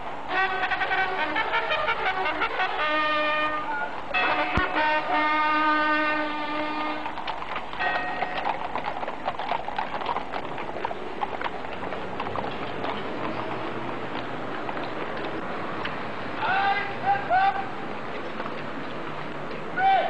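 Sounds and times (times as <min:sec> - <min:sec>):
brass music: 0:00.3 - 0:07.3.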